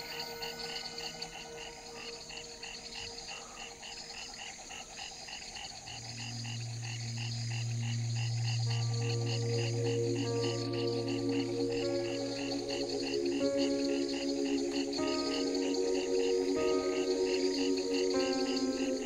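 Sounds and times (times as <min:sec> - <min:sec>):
low sustained drone: 0:00.0 - 0:04.2, 0:05.8 - 0:19.0
animals calling at night: 0:00.0 - 0:19.0.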